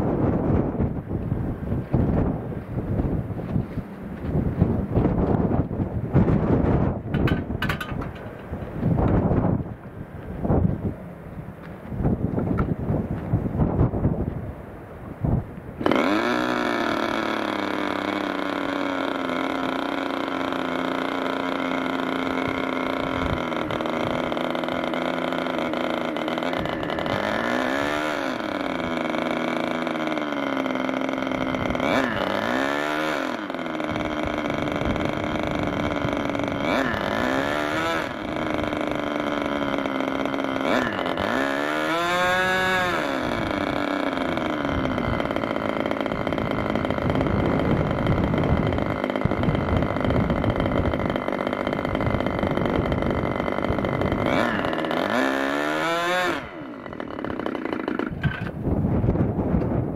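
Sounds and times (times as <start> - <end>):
electric starter: 0.3 - 14.3, 15.7 - 59.9
model engine running: 15.7 - 59.9.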